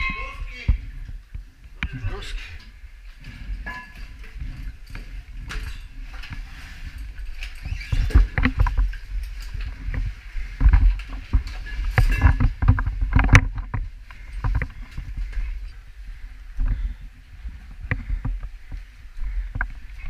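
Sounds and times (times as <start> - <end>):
gear knocking and scraping rock: 3.2 - 15.7.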